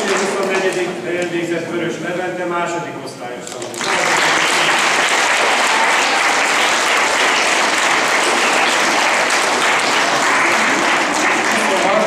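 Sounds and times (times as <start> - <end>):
children applauding: 0.0 - 0.8, 3.7 - 12.0.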